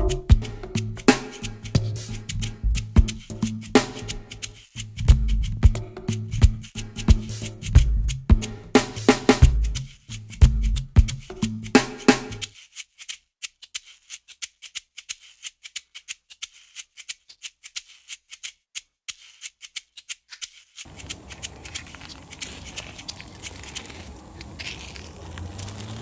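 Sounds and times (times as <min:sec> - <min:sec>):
shaker rattling in music: 0:00.0 - 0:17.7
rustle of grass and gravel: 0:20.6 - 0:26.0.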